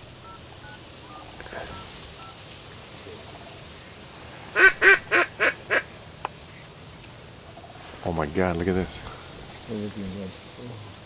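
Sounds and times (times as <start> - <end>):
duck call quacks: 4.6 - 5.9.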